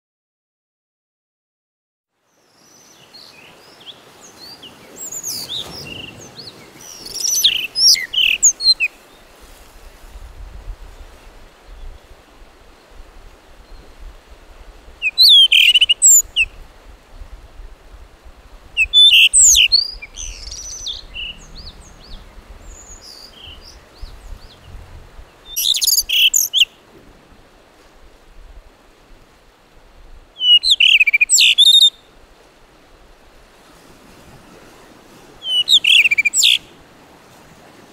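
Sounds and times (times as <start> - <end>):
bird singing warbling whistles: 6.9 - 8.9, 15.0 - 16.5, 18.8 - 24.6, 25.5 - 26.7, 30.4 - 32.0, 35.4 - 36.6
faint low rumble: 19.9 - 25.6.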